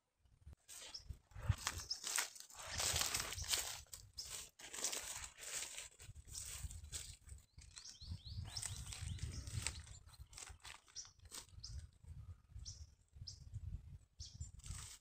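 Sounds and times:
footsteps through dry weeds: 0:00.7 - 0:11.8
bird chirps: 0:00.8 - 0:02.2, 0:07.3 - 0:13.6, 0:14.2 - 0:14.6.

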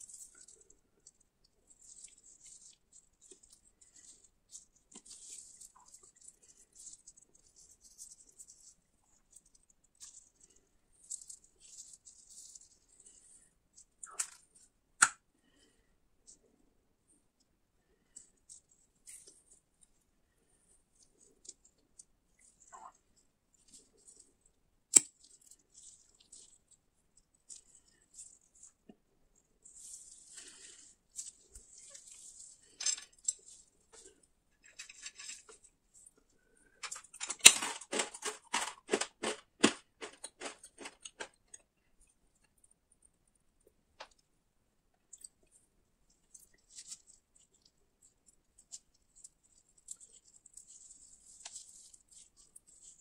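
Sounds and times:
faint crackles of coating pieces: 0:00.0 - 0:53.0
crunchy snack shell cracking: 0:36.8 - 0:41.6.

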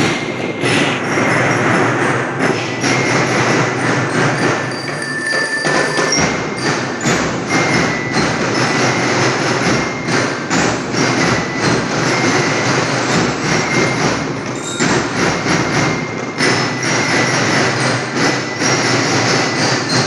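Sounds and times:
marching band drums: 0:00.0 - 0:20.0
metal bell notes: 0:00.0 - 0:20.0.

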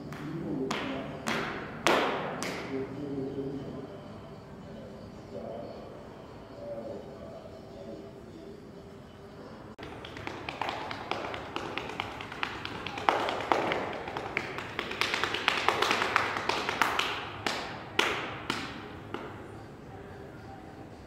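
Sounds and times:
feet tapping on hardwood floor: 0:09.8 - 0:17.6.

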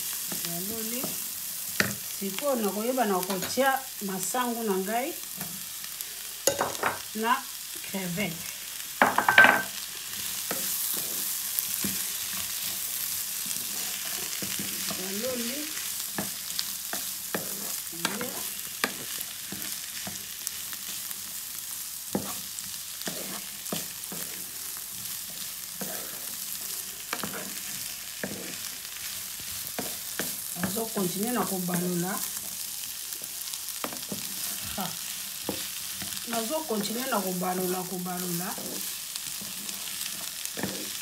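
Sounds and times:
food sizzling in a frying pan: 0:00.0 - 0:41.0
wooden spatula scraping a pan: 0:09.6 - 0:20.3, 0:22.2 - 0:32.4, 0:33.2 - 0:41.0.

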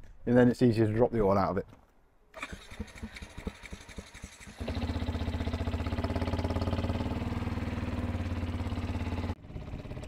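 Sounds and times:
motorcycle engine idling: 0:02.4 - 0:10.0.

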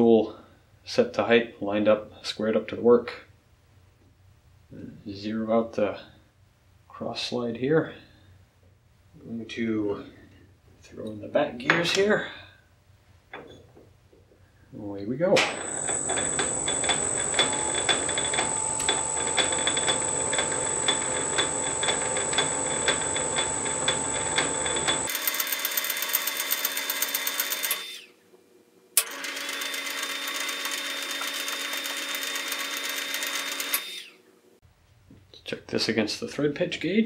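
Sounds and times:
lathe whining and ticking: 0:15.5 - 0:28.0, 0:29.0 - 0:34.1.

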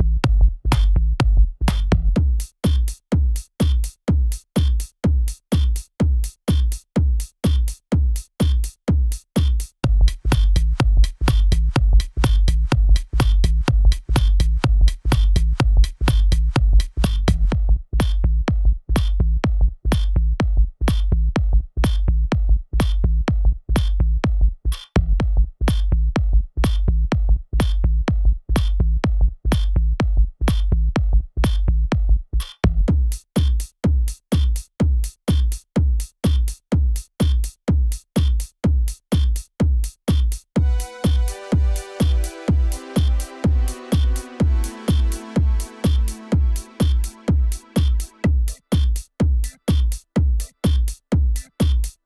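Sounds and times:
heavy bass: 0:00.0 - 0:02.4, 0:09.8 - 0:33.1, 0:40.6 - 0:48.6
drum machine beat: 0:00.0 - 0:52.0
electronic dance music: 0:09.4 - 0:15.4, 0:40.6 - 0:52.0.

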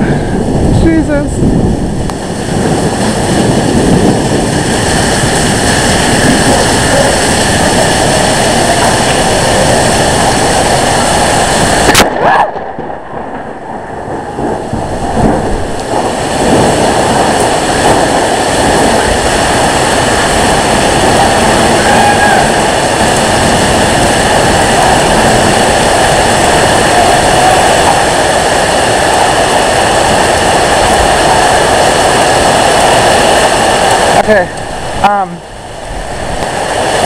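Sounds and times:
wind gusts buffeting microphone: 0:00.0 - 0:37.0
sharp crack: 0:11.6 - 0:20.5.

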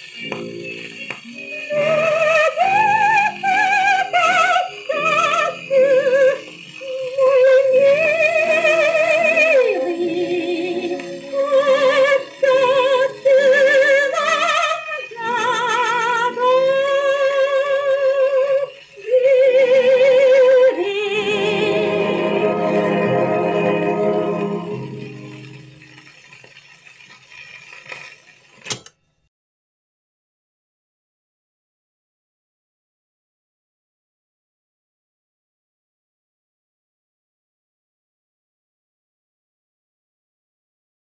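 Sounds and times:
woman singing with vibrato: 0:01.5 - 0:25.6
jazz band on old record: 0:20.5 - 0:26.1.

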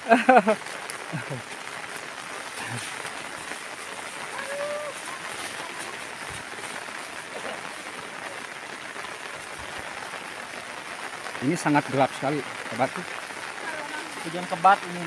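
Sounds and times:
heavy rain falling: 0:00.0 - 0:15.0.

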